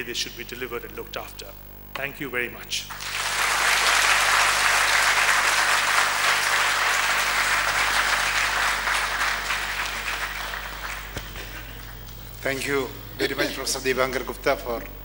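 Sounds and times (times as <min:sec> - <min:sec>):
audience applauding: 0:02.9 - 0:12.1.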